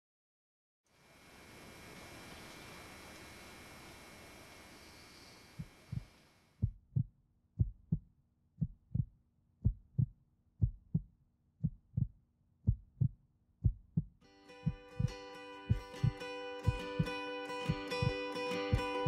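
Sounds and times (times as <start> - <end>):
faint tape hiss: 0.9 - 6.6
heartbeat thumps: 5.6 - 8.0, 8.6 - 19.0.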